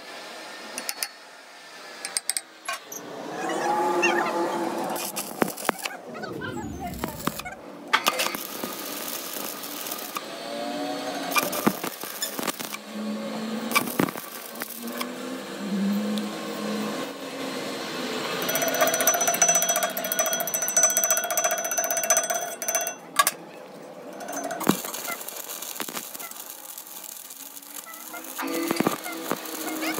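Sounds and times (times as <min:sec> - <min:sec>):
welding arc crackling: 0:04.8 - 0:15.3, 0:24.1 - 0:29.9.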